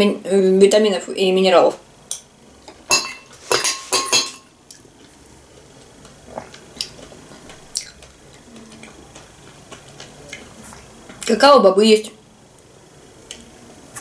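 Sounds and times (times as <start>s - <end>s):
metal spoon clinking in glass bowl: 2.9s - 4.5s.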